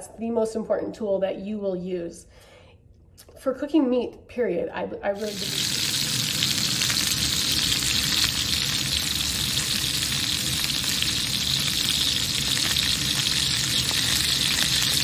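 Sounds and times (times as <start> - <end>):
steaks sizzling in a skillet: 5.2 - 15.0.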